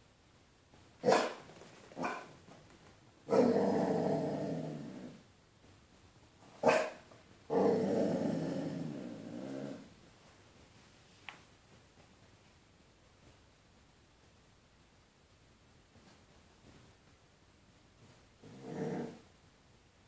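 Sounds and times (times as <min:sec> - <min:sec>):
dog barking: 0:01.0 - 0:02.3, 0:06.6 - 0:07.1.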